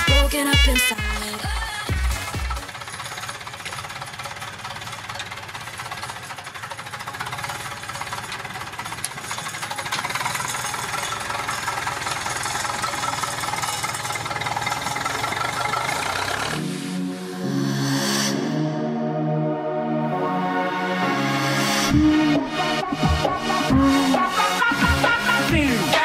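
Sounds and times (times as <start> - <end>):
tractor diesel engine clattering: 0.0 - 16.9.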